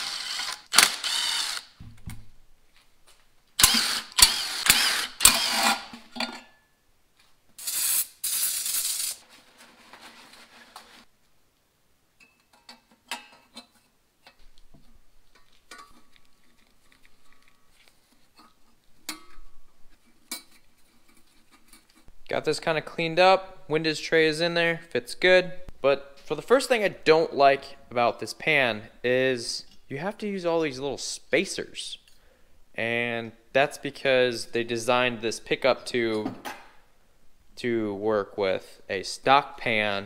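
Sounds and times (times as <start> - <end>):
cordless ratchet spinning: 0.0 - 1.7.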